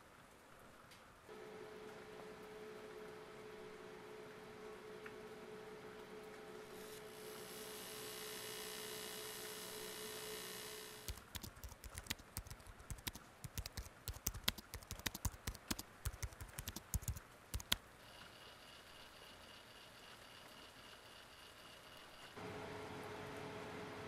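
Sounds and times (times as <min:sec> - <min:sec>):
quiet hum with high tone: 0:00.4 - 0:15.0
steady hum with held tone: 0:01.3 - 0:11.3, 0:17.9 - 0:24.0
laptop keyboard typing: 0:11.0 - 0:17.8.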